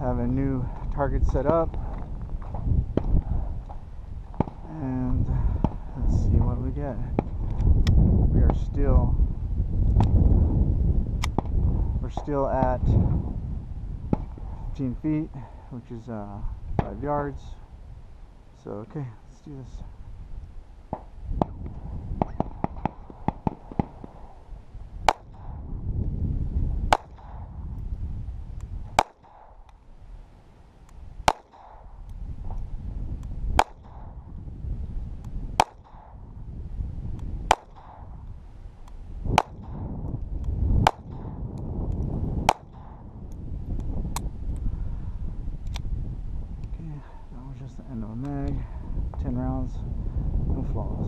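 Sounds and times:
low rumble: 0:00.0 - 0:51.0
pistol shots: 0:22.2 - 0:24.4, 0:25.0 - 0:25.6, 0:26.9 - 0:27.5, 0:28.9 - 0:29.7, 0:31.2 - 0:32.0, 0:33.6 - 0:34.2, 0:35.6 - 0:36.2, 0:37.5 - 0:38.2, 0:39.3 - 0:39.9, 0:40.8 - 0:41.4, 0:42.5 - 0:43.0.

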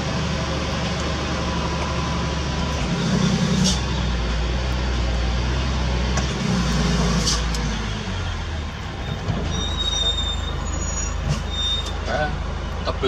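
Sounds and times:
heavy diesel engine running: 0:00.0 - 0:13.0
faint high squeal: 0:09.0 - 0:12.0.

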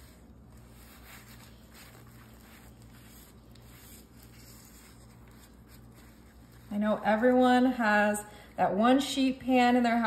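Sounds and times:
gloved hand rubbing paste on metal pan: 0:00.0 - 0:07.8
low steady hum: 0:00.0 - 0:10.0.

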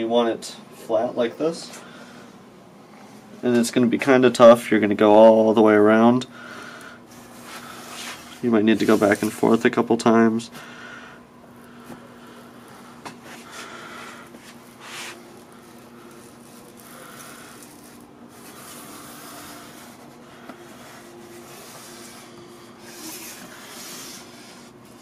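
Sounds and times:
faint steady hum: 0:00.0 - 0:25.0
wheel tool scraping glass: 0:07.8 - 0:09.5, 0:21.3 - 0:25.0.

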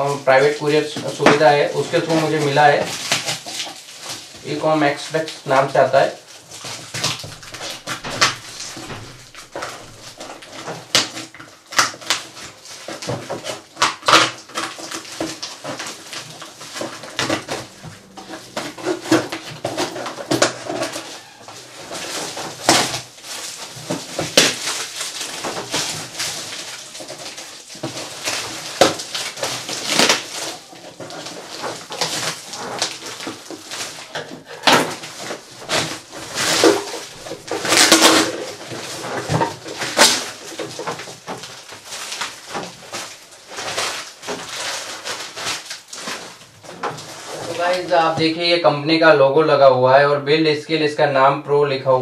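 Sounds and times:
plastic crinkling: 0:00.0 - 0:48.7
cardboard box scraping: 0:14.6 - 0:48.2.

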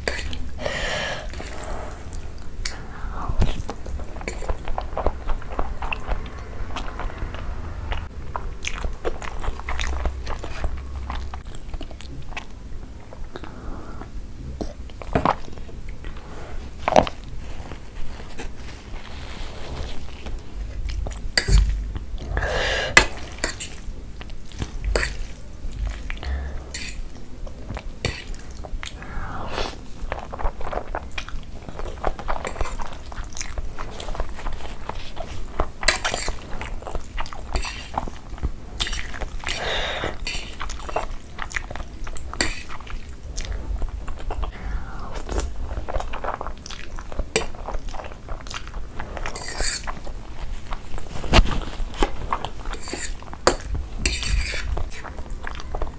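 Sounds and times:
chewing noodles: 0:03.4 - 0:13.6, 0:23.0 - 0:55.9
wet mouth sounds: 0:24.4 - 0:31.4.

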